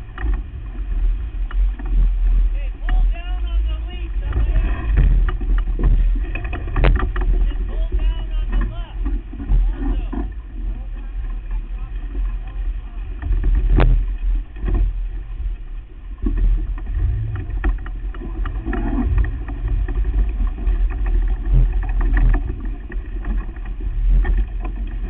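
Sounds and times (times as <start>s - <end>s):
sharp clicks and knocks: 0.0s - 0.5s, 4.2s - 10.4s, 16.2s - 25.0s
wind buffeting microphone: 0.0s - 25.0s.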